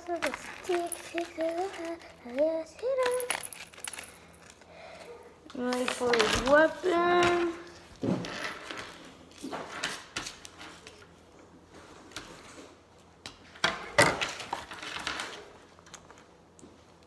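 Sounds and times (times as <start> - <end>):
plastic pieces clicking and rattling: 0.2 - 4.6.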